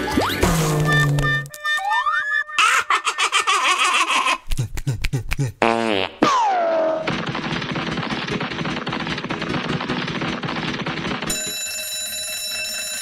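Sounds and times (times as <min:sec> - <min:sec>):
cartoon running feet clatter: 0:07.1 - 0:12.7.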